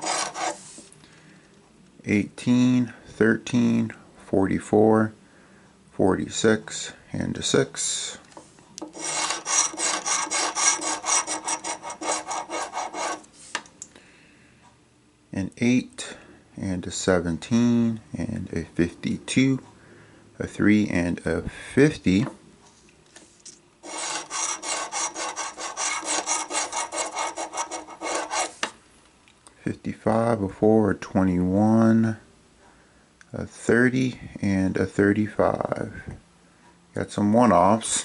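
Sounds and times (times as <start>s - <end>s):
coin scratching lottery ticket: 0.0s - 0.7s, 8.9s - 13.3s, 23.8s - 28.7s.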